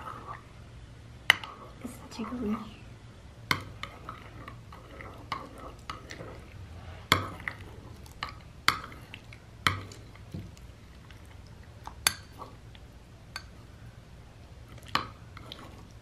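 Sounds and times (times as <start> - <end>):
spoon scraping slime: 3.7 - 10.2.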